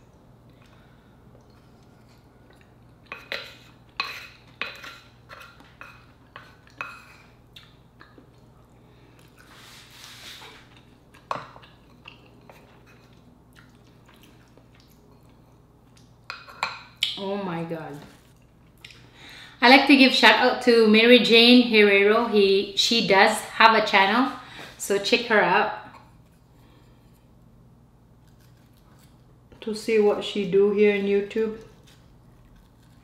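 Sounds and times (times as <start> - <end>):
wet eating clicks and smacks: 7.5 - 8.5, 13.1 - 16.2.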